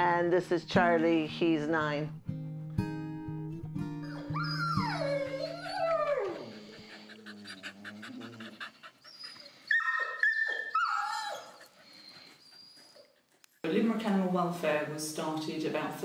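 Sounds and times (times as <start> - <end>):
dog whining: 3.9 - 13.4
dog howling: 4.1 - 11.6.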